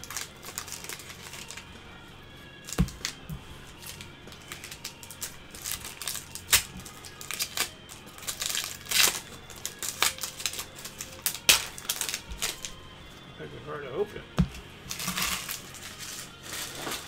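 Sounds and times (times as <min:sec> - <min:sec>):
wrapper crinkling rustle: 0:00.0 - 0:01.8, 0:02.6 - 0:12.8, 0:14.8 - 0:17.0
cards tapping and clicking: 0:02.7 - 0:12.7.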